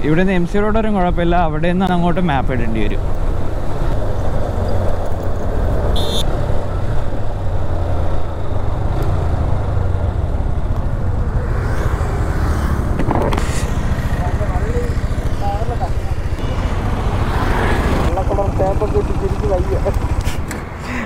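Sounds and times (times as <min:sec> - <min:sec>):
road traffic: 0:00.0 - 0:21.0
motorcycle engine running: 0:09.7 - 0:20.2.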